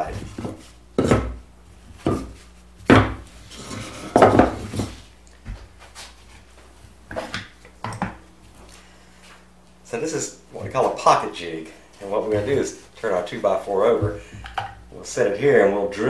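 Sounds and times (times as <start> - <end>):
wooden boards knocking: 2.0 - 3.2, 4.1 - 4.6.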